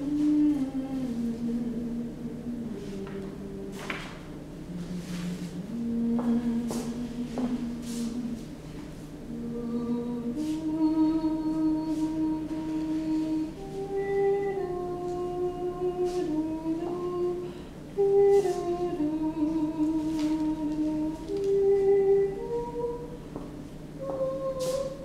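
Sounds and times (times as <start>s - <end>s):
person humming a slow tune: 0.0s - 25.0s.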